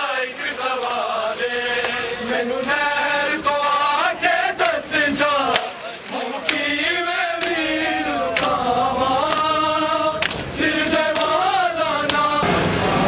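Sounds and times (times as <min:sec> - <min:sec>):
men chanting in unison: 0:00.0 - 0:13.0
hand slaps on bare chests: 0:08.3 - 0:08.6, 0:09.2 - 0:09.5, 0:10.2 - 0:10.5, 0:12.0 - 0:12.4.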